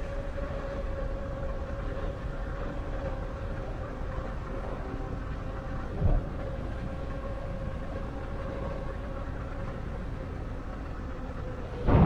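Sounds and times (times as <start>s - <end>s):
electric bike motor whine: 0.0s - 12.0s
rumble of tyres and air: 0.0s - 12.0s.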